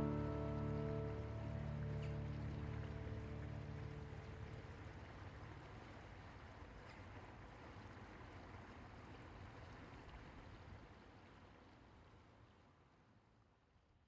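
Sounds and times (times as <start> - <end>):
faint steady rushing noise: 0.0 - 9.6.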